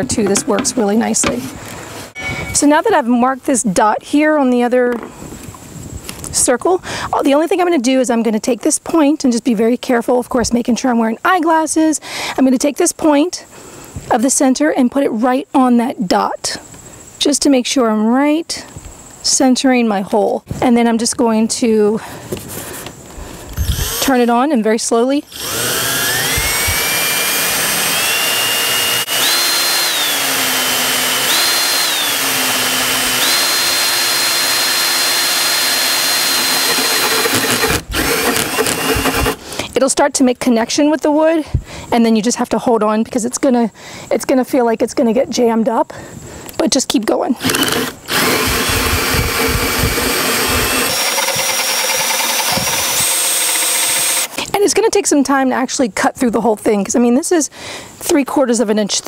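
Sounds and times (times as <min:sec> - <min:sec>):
cordless drill motor whine: 0:23.6 - 0:24.3, 0:25.3 - 0:39.4, 0:47.4 - 0:54.3
hole saw cutting into wood: 0:23.6 - 0:24.3, 0:25.3 - 0:39.4, 0:47.4 - 0:54.4.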